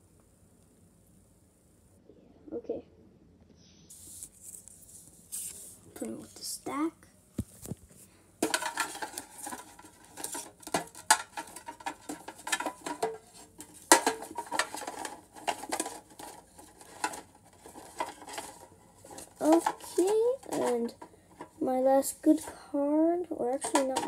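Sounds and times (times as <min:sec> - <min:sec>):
trading cards being shuffled: 0:03.9 - 0:06.4.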